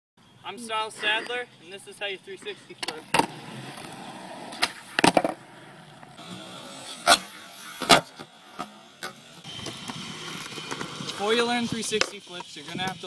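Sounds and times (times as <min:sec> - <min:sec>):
skateboard clacking on asphalt: 0:02.8 - 0:05.4.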